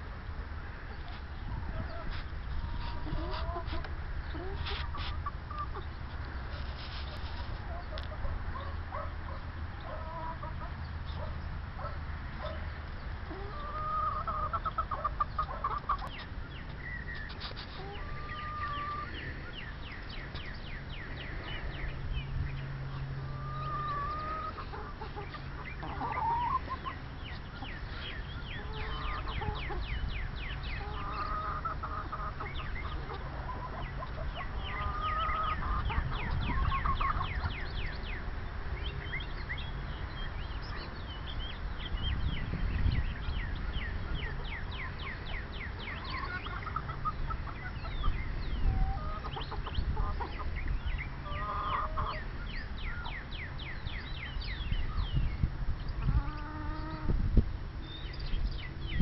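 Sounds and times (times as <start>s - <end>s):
hens clucking: 0.9s - 22.2s, 22.9s - 38.2s, 45.8s - 52.7s, 55.9s - 57.3s.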